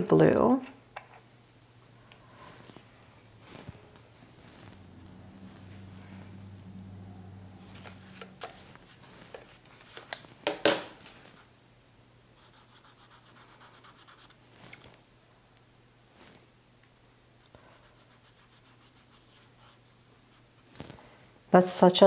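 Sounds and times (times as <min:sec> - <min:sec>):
swab rubbing on paper: 0:12.4 - 0:14.4, 0:17.8 - 0:20.6.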